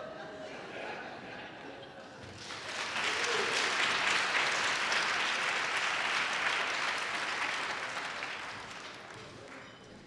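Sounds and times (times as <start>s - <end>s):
large audience applauding: 2.4s - 9.6s.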